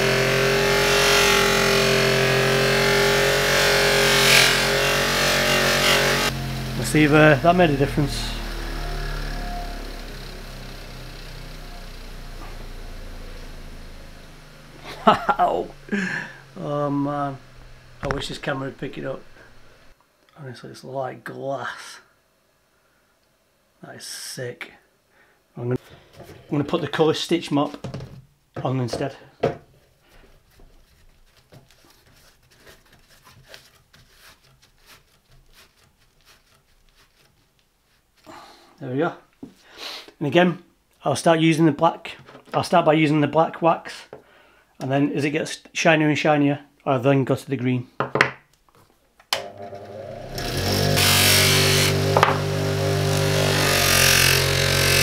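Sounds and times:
electric motor hum: 0.0s - 20.0s, 49.4s - 55.0s
metal scraping on buffing wheel: 0.0s - 20.0s, 49.6s - 55.0s
faint clicks and scuffs of cloth mop: 30.1s - 38.3s.

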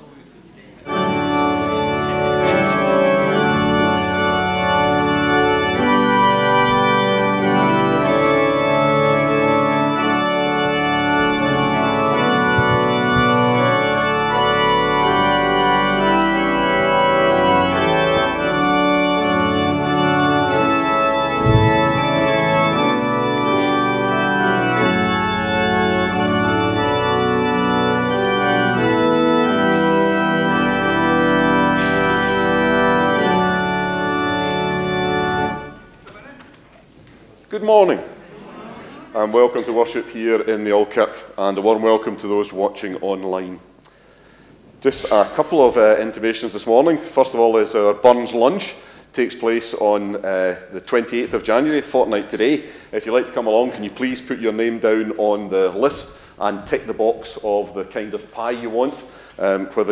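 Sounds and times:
church organ playing sustained chords: 0.8s - 36.0s, 44.8s - 59.9s
low thump: 12.5s - 13.8s, 21.4s - 22.6s.

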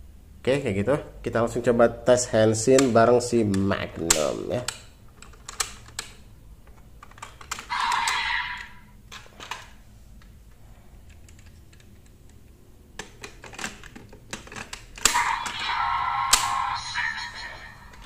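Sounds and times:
plastic buckles clicking: 2.7s - 8.2s, 11.0s - 15.6s
electronic toy sound effect: 7.7s - 8.9s, 15.1s - 18.0s.

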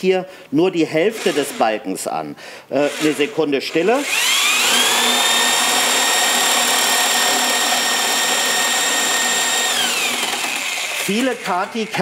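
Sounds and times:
electric drill whining: 1.1s - 1.7s, 4.0s - 12.0s
spade bit chipping wood: 4.0s - 12.0s.

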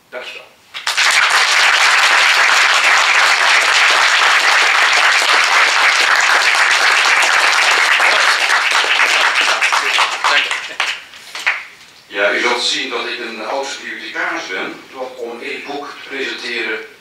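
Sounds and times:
audience applauding: 0.8s - 11.8s.

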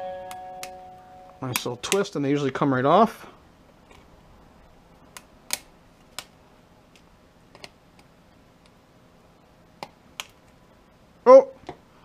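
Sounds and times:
sharp clicks of pliers on switches: 1.5s - 2.1s, 5.1s - 6.3s.

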